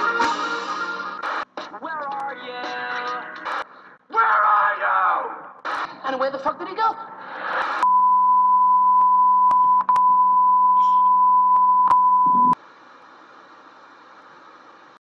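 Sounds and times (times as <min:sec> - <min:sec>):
high-pitched test tone beep: 0:07.8 - 0:12.6
tv static hiss: 0:12.5 - 0:15.0.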